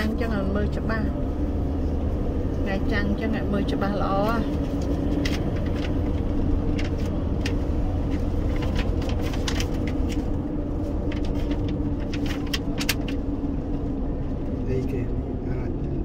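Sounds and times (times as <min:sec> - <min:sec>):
car road and engine rumble: 0:00.0 - 0:16.0.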